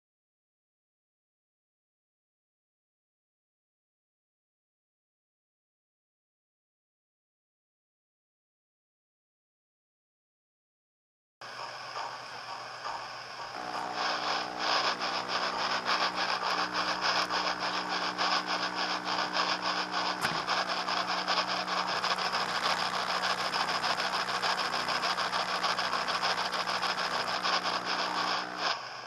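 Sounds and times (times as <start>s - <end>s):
low hum: 11.4s - 28.9s
steam locomotive chuffing from speaker: 11.4s - 29.0s.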